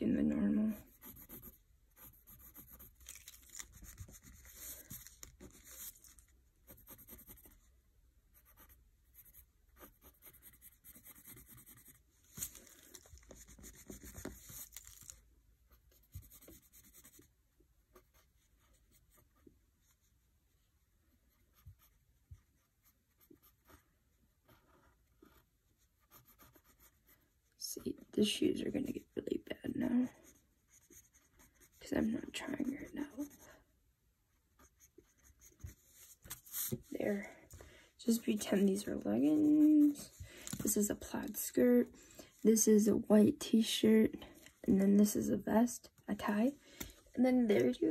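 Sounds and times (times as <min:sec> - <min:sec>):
pencil scratching on paper: 0:00.5 - 0:07.7, 0:08.3 - 0:12.6, 0:13.2 - 0:14.9, 0:15.7 - 0:17.3, 0:17.9 - 0:20.2, 0:21.3 - 0:27.2, 0:29.8 - 0:33.4, 0:34.5 - 0:37.3, 0:38.1 - 0:41.0.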